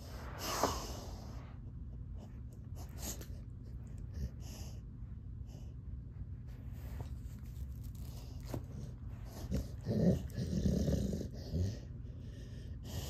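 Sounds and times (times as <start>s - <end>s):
dog growling: 9.2s - 12.0s.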